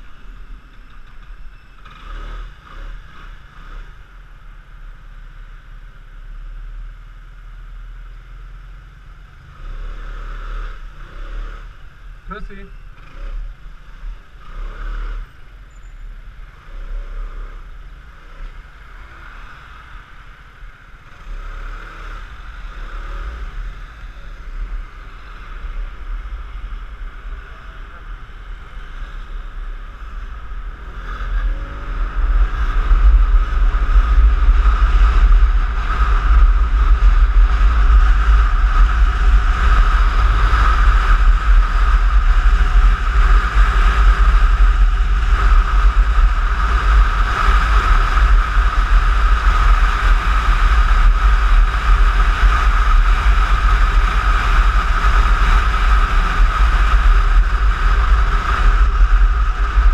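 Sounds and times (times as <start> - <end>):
scooter engine: 8.6 - 59.9
wind rumble on microphone: 13.0 - 59.9.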